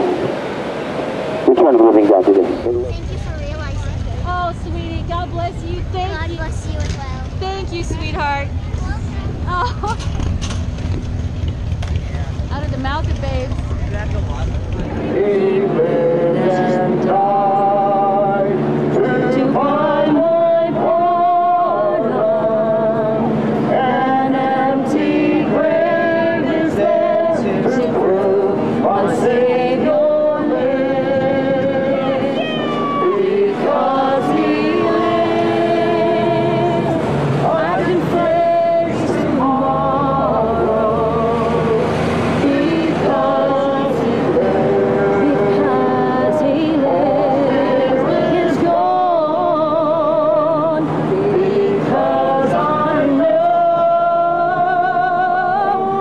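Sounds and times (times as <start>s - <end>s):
voices singing slow song: 0.0s - 2.9s, 15.0s - 56.0s.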